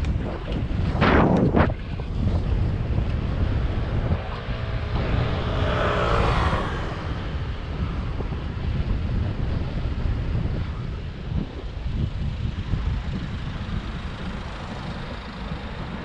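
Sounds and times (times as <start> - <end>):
wind rumble on microphone: 0.0 - 16.0
vehicle passing: 2.3 - 9.1.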